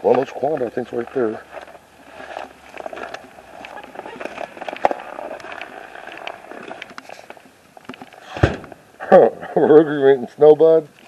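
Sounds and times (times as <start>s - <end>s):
footsteps crunching on snow: 0.0s - 7.5s.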